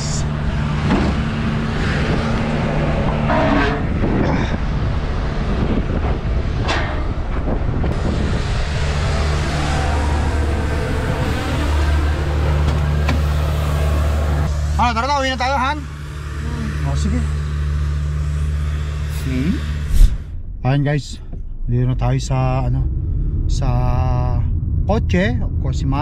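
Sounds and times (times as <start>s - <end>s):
vehicle engine idling: 0.0s - 6.5s.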